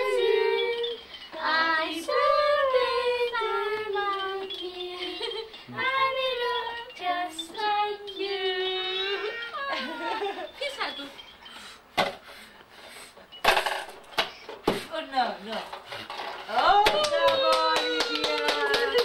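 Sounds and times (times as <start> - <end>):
high voices singing slow tune: 0.0 - 10.0.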